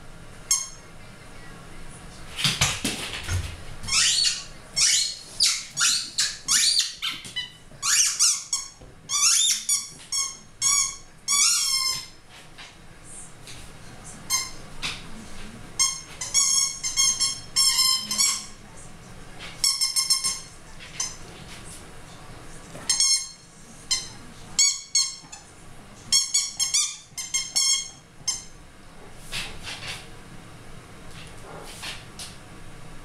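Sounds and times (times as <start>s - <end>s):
rubber toy squeaking: 3.9s - 12.1s.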